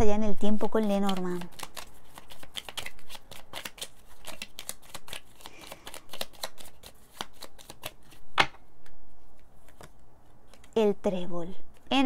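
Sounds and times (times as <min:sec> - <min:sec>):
cards being shuffled: 0:00.6 - 0:10.9, 0:11.6 - 0:12.0.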